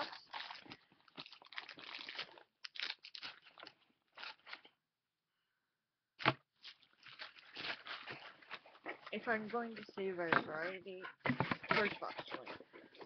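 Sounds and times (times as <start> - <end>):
packaging rustling and crinkling: 0.0 - 4.7, 6.6 - 10.1.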